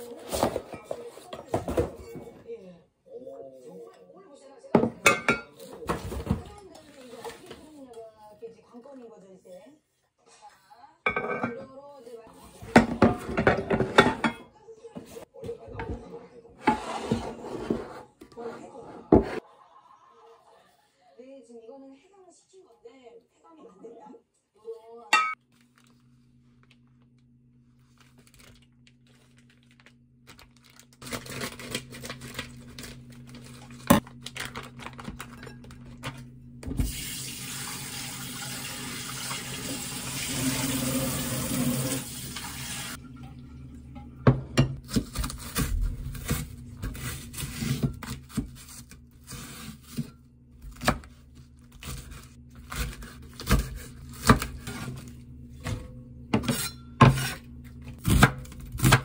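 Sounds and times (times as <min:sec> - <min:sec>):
kitchen tap running: 0:36.6 - 0:44.8.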